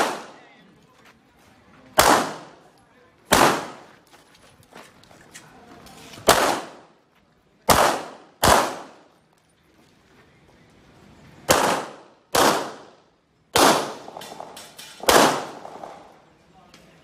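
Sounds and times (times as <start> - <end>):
pistol shots with echo: 0.0 - 0.4, 2.0 - 2.6, 3.3 - 3.9, 6.2 - 6.9, 7.6 - 9.1, 11.5 - 16.1.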